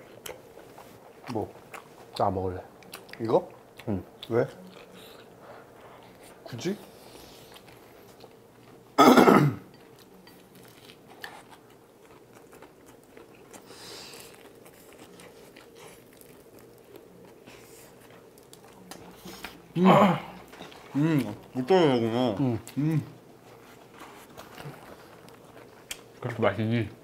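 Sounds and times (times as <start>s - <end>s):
people chewing: 0.0s - 9.0s, 9.7s - 27.0s
man coughing: 9.0s - 9.7s, 19.8s - 20.4s.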